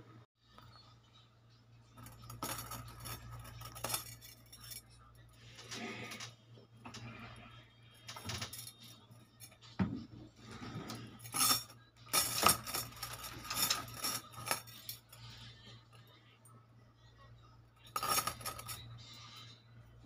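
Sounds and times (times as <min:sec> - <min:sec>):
bangles clinking and jingling: 0:01.9 - 0:05.2, 0:08.0 - 0:09.7, 0:11.1 - 0:15.6, 0:17.8 - 0:19.4.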